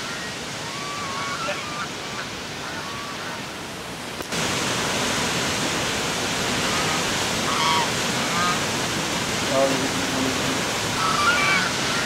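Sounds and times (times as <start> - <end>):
geese honking: 0.0 - 3.4, 6.6 - 8.7, 10.9 - 12.0
stream and waterfall rushing: 0.0 - 12.0.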